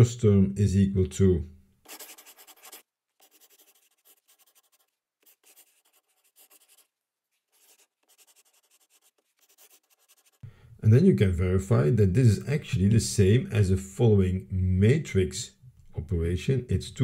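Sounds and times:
stylus scratching on tablet: 1.9s - 10.4s.

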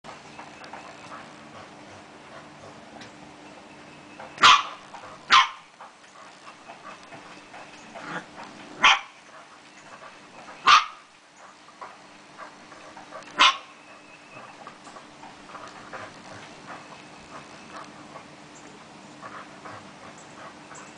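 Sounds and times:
puppy barking: 4.4s - 5.7s, 8.8s - 9.2s, 10.6s - 11.1s, 13.2s - 13.7s.

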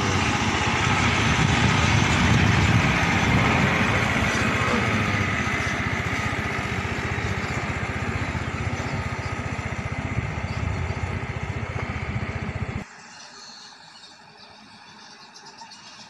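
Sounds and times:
dump truck engine throbbing: 0.0s - 12.8s.

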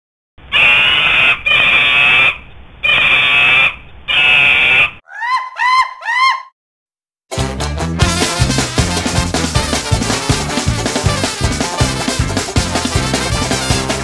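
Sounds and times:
monkey screeching: 0.5s - 6.5s
ska music with drums and brass: 7.3s - 14.0s.

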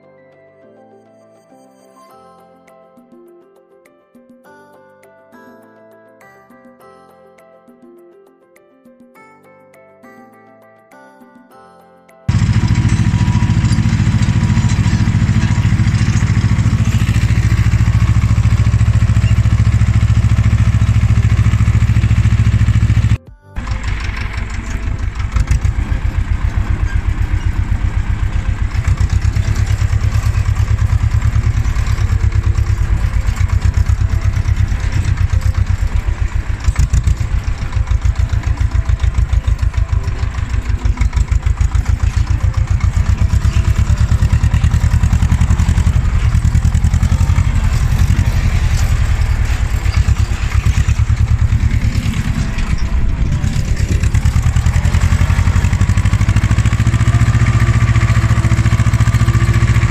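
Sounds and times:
tractor diesel engine running: 12.3s - 59.9s.

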